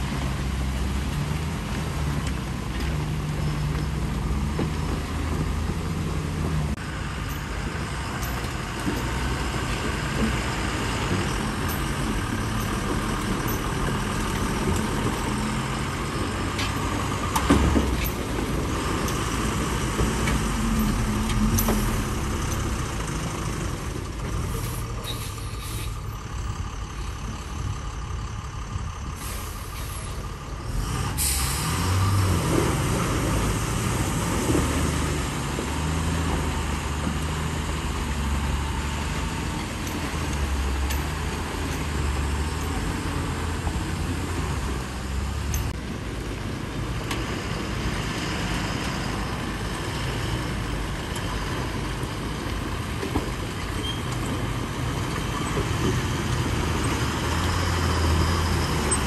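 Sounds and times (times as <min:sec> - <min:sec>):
diesel truck engine running: 0:00.0 - 0:59.0
air brake hisses: 0:24.6 - 0:26.1, 0:29.2 - 0:30.2, 0:31.2 - 0:31.8.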